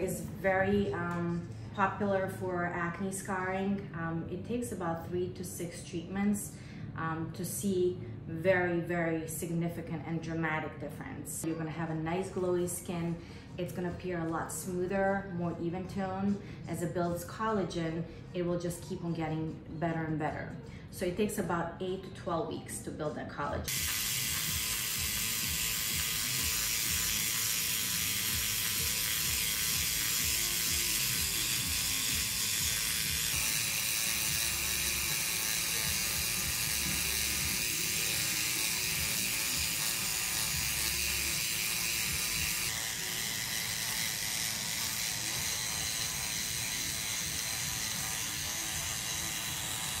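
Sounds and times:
microneedling pen buzzing: 23.7s - 50.0s.

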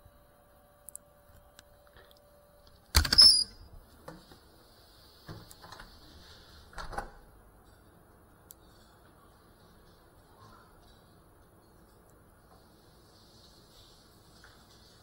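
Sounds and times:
faint hiss: 12.4s - 15.0s.

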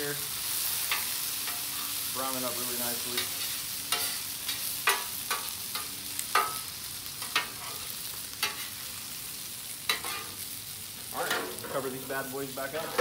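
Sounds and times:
potatoes sizzling in oil: 0.0s - 13.0s
metal spatula scraping griddle: 0.7s - 6.6s, 7.2s - 8.9s, 9.9s - 10.4s, 11.1s - 13.0s.

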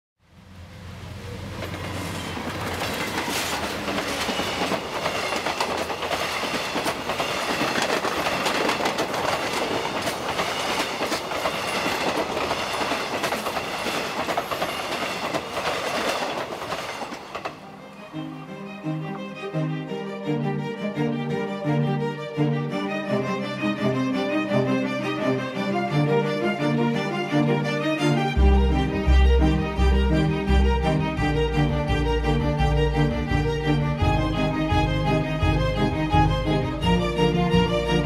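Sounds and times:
locomotive engine hum: 0.2s - 15.7s, 16.5s - 38.0s
string music: 0.4s - 38.0s
train wheels clacking: 1.5s - 17.6s.

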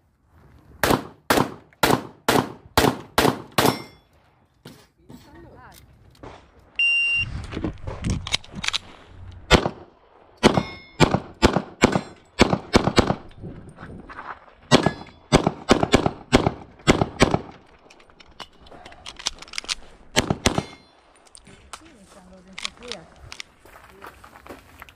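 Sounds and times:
pistol shots: 0.8s - 3.9s, 9.5s - 13.2s, 14.7s - 17.6s, 20.1s - 20.8s
shot timer beep: 6.8s - 7.3s.

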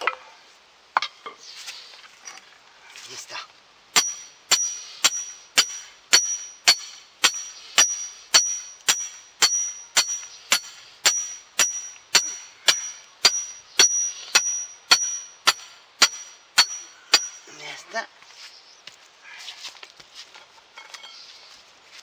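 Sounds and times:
hammer clanging on iron stake: 4.0s - 17.5s.

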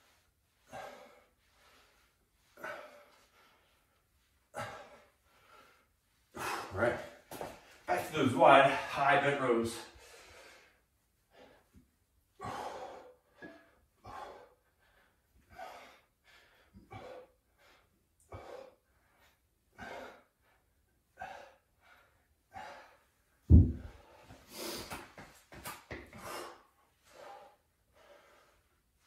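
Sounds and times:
person breathing hard: 0.0s - 7.9s, 9.8s - 25.3s, 26.1s - 28.9s
loud low thump: 23.5s - 23.9s.

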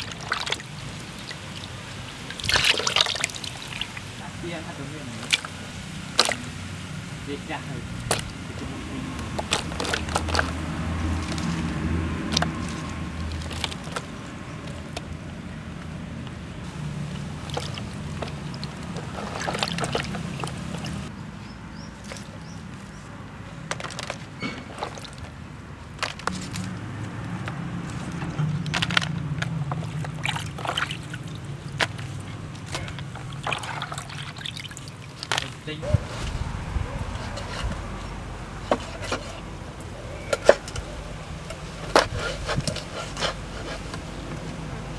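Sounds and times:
vegetables splashing into water: 0.0s - 4.2s, 16.9s - 21.1s, 28.0s - 35.8s
herbs rustling and tapping: 8.0s - 15.1s, 22.0s - 35.7s.

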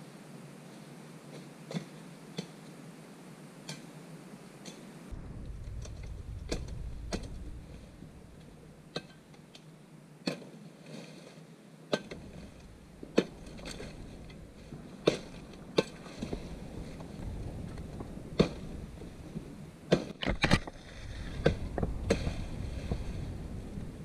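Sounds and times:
wind rumble on microphone: 5.1s - 8.9s, 12.2s - 24.0s.

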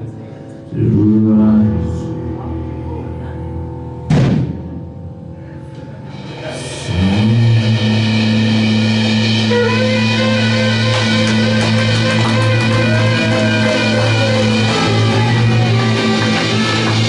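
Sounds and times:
drum hit: 4.1s - 4.9s
live band music: 6.0s - 17.0s.

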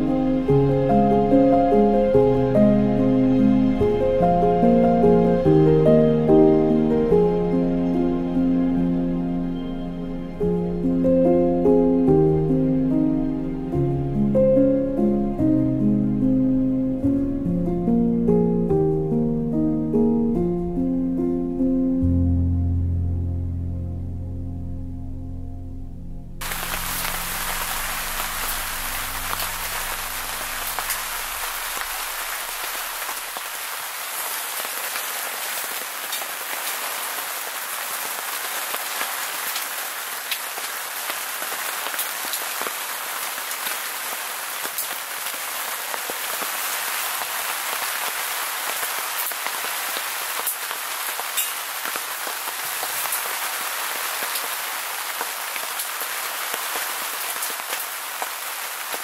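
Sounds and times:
heavy rain on tent fabric: 0.0s - 8.0s, 26.4s - 59.0s
raindrop ticks: 26.4s - 59.0s.

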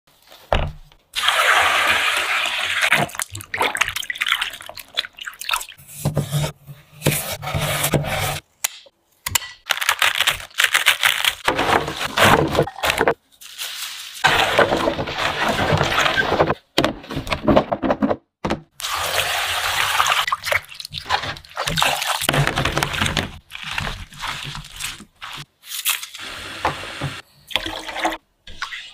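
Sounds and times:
hands swishing vegetables in water: 10.6s - 16.4s, 18.8s - 26.4s.

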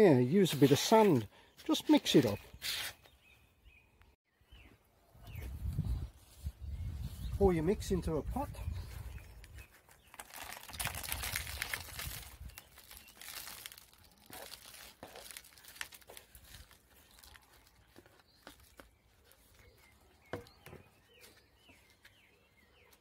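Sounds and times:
potting mix pouring into plastic pot: 10.2s - 12.2s.

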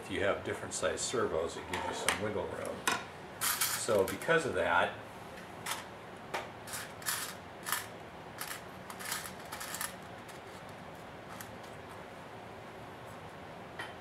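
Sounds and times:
screws clinking in metal tin: 6.7s - 10.0s.

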